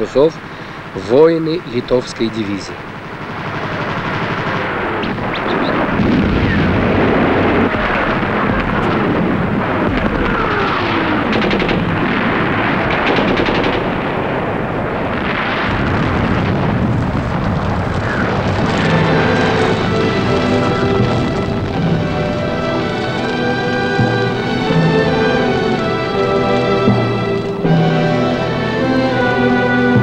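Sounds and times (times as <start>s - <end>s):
rumble of explosions: 0.0s - 30.0s
rifle and machine-gun fire: 2.9s - 21.9s.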